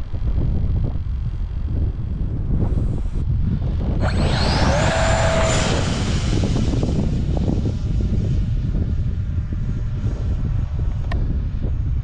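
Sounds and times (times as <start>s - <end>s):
wind buffeting microphone: 0.0s - 12.0s
model jet fan hissing: 4.0s - 8.7s.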